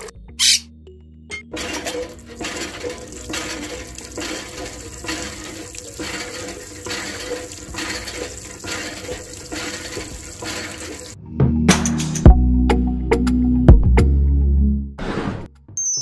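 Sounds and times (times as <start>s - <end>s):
water splashing into steel bucket: 1.5s - 11.2s.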